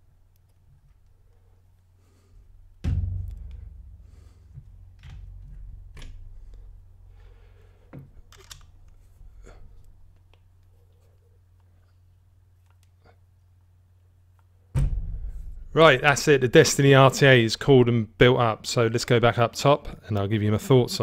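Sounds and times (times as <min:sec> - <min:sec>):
thump: 0:02.8 - 0:06.0, 0:14.8 - 0:15.8.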